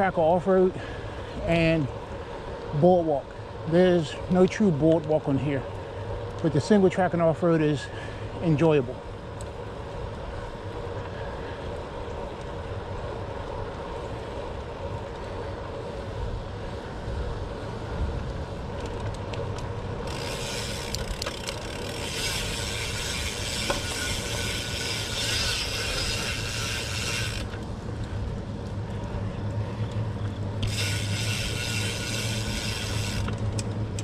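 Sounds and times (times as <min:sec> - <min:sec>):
low rumble of tyres and wind: 0:00.0 - 0:34.0
bicycle freewheel ratchet clicking: 0:18.7 - 0:34.0.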